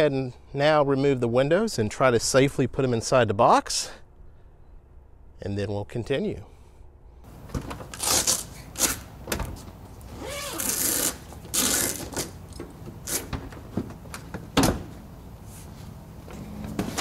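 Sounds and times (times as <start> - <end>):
vinyl rustling: 7.3 - 17.0
zipper rasping: 10.1 - 12.4.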